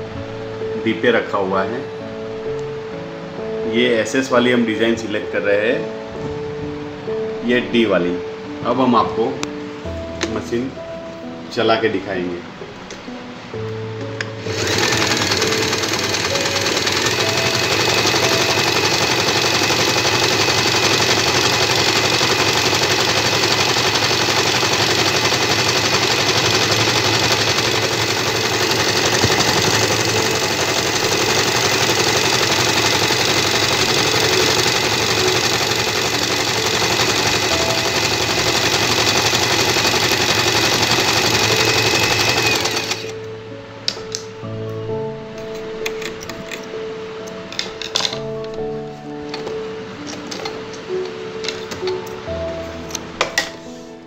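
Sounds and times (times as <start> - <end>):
electric sewing machine running: 14.4 - 43.2.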